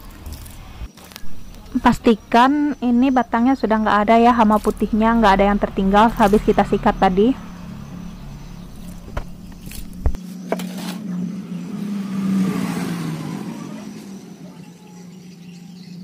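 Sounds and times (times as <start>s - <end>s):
low hum: 0.0s - 10.2s
motor vehicle passing: 0.0s - 10.2s, 11.0s - 15.6s.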